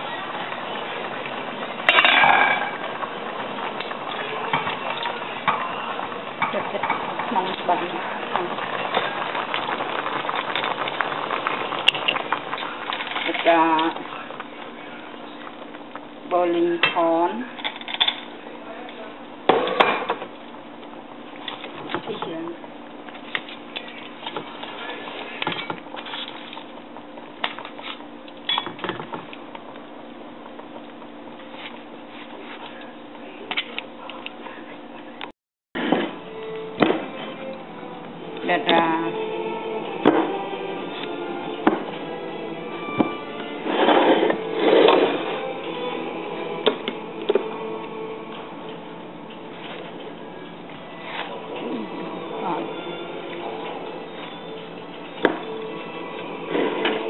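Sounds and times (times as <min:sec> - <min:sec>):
metal pots clinking: 0:00.0 - 0:14.4, 0:27.4 - 0:29.4
gas stove hissing: 0:00.0 - 0:35.2, 0:35.8 - 0:57.0.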